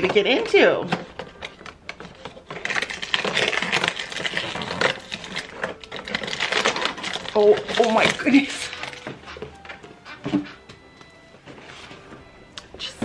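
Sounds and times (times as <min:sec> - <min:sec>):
thin cardboard tearing and crackling: 0:02.2 - 0:09.0.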